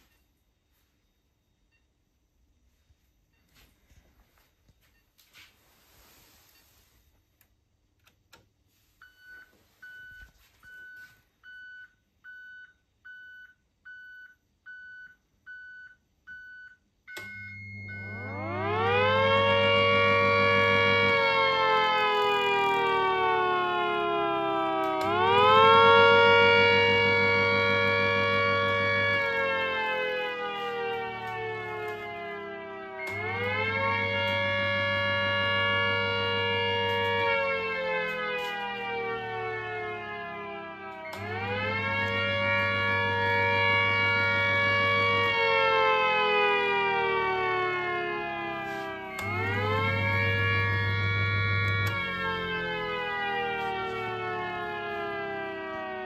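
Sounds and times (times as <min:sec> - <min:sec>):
motor siren wailing: 0:17.1 - 0:56.0
electric motor hum: 0:17.7 - 0:56.0.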